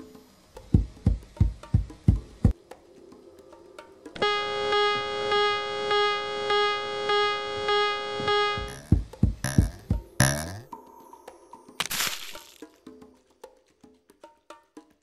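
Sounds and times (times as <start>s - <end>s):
pulsing electronic keyboard note: 4.2s - 10.6s
short low thumps: 8.6s - 10.6s.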